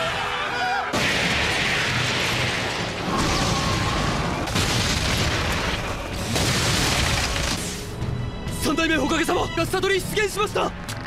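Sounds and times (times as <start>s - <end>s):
booms and crashing destruction: 0.9s - 7.8s.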